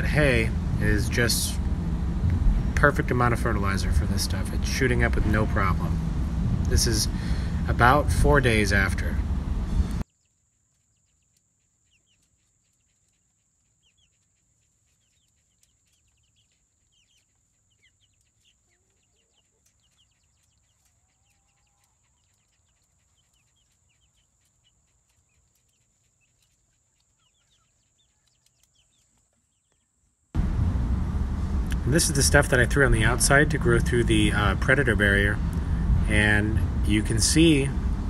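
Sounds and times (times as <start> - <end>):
faint chicks peeping: 0.0 - 30.3.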